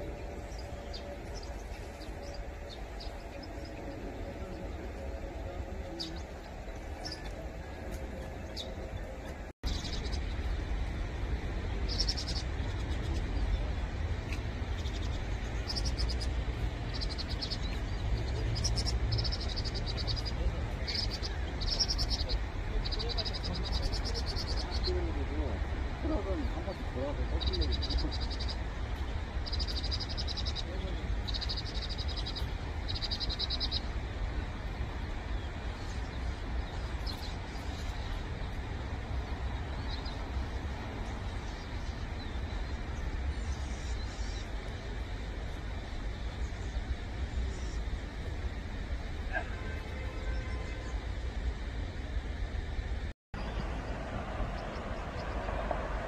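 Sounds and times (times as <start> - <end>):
birds chattering trills: 0.0 - 51.8
steady low rumble: 0.0 - 56.0
birds chattering: 11.7 - 34.1.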